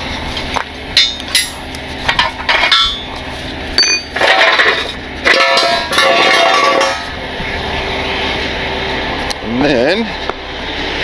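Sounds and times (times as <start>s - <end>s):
steel scraping and rattling: 0.2s - 7.2s
metal clanks and clinks: 1.0s - 3.1s, 3.8s - 7.2s
bright ringing metal clink: 3.8s - 4.2s.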